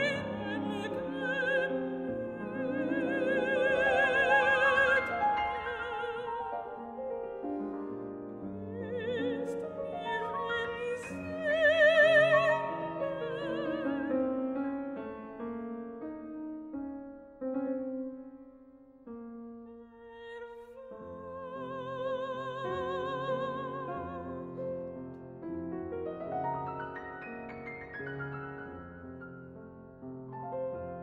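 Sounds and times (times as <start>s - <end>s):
soprano singing with vibrato: 0.0s - 15.1s, 19.8s - 24.8s
piano accompaniment: 0.0s - 20.2s, 20.8s - 31.0s.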